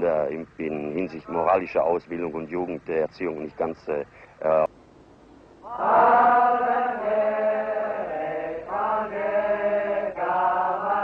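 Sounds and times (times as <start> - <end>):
men singing together: 5.7 - 11.0.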